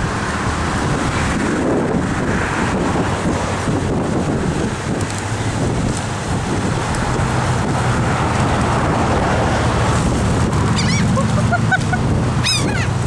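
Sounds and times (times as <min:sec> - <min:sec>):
wind: 0:00.0 - 0:13.0
surf: 0:00.6 - 0:13.0
gulls calling: 0:10.5 - 0:13.0.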